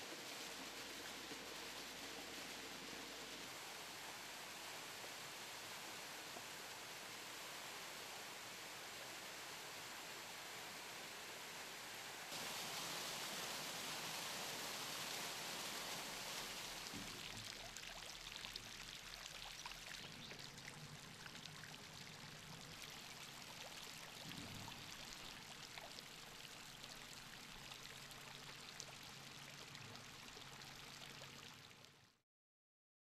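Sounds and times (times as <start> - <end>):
water pouring and splashing: 12.3 - 32.0
water dripping: 16.6 - 32.0.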